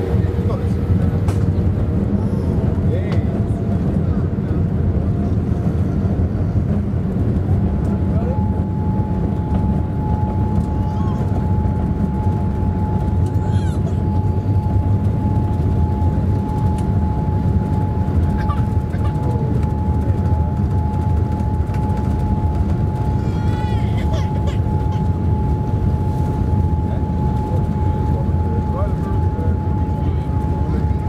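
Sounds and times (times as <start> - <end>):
jet engine high whine: 0.0 - 31.0
jet engines low rumble: 0.0 - 31.0.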